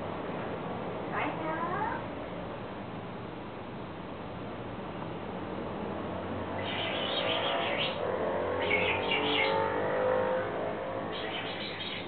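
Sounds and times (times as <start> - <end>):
parrot high chirps: 6.6 - 8.0, 8.6 - 9.6, 11.1 - 12.0.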